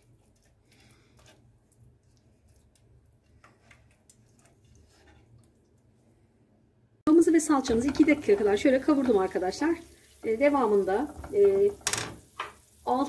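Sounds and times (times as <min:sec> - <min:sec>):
wooden spoon scraping a frying pan: 0:00.4 - 0:01.5, 0:03.2 - 0:05.4, 0:07.4 - 0:12.8.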